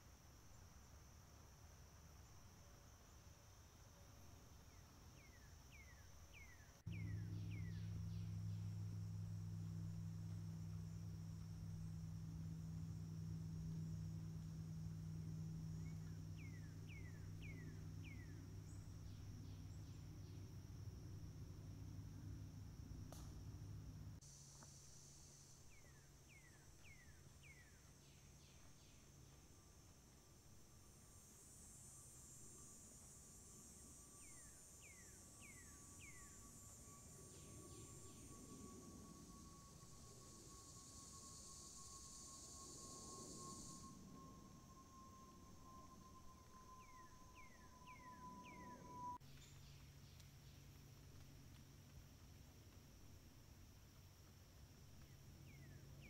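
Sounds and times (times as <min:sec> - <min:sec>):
crickets chirping: 0:00.0 - 0:56.0
insects trilling: 0:00.0 - 0:56.0
low hum: 0:03.9 - 0:56.0
low rumble: 0:06.9 - 0:24.2
bird whistling: 0:43.5 - 0:49.2.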